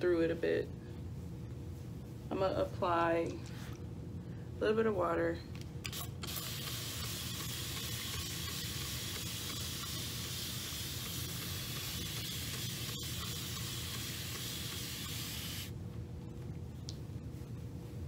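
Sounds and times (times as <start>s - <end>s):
spray bottle misting hiss: 5.9s - 15.7s.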